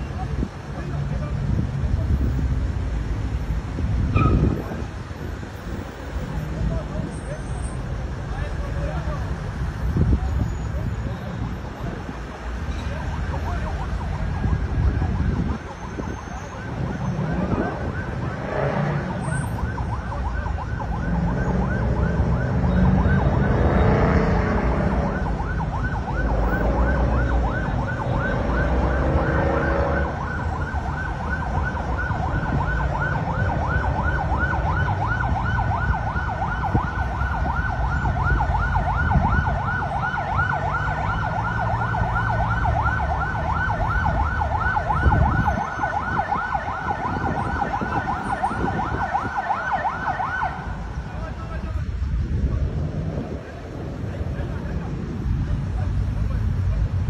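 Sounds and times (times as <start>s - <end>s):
emergency siren warbling: 12.8s - 51.4s.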